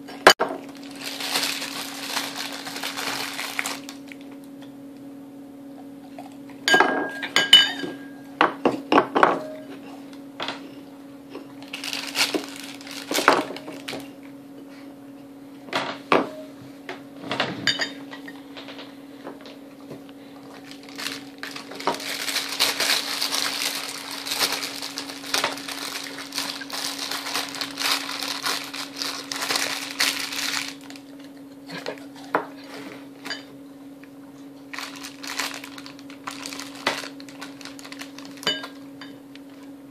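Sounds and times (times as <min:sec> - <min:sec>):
plastic sleeve crinkling: 0:00.6 - 0:04.4, 0:11.6 - 0:14.2, 0:20.4 - 0:31.4, 0:34.7 - 0:38.8.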